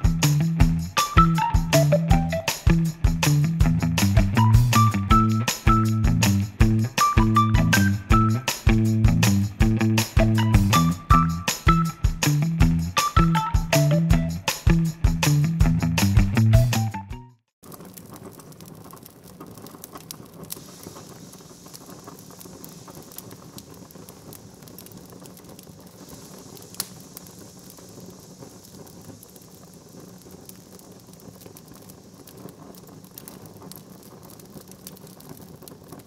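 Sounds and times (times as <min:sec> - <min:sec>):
crackling patter of clicks: 0:17.6 - 0:36.0
soft hiss: 0:20.1 - 0:35.9.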